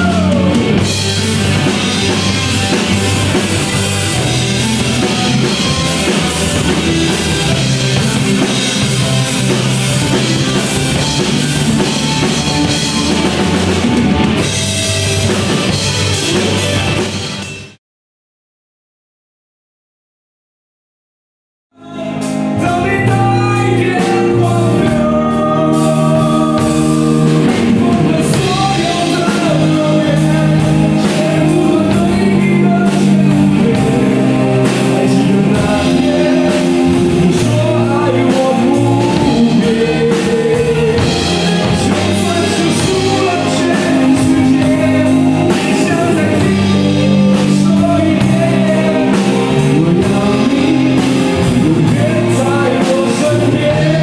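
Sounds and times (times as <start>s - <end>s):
man singing into microphone: 0.0s - 1.0s, 21.8s - 54.0s
live rock band playing: 0.0s - 17.8s, 21.8s - 54.0s.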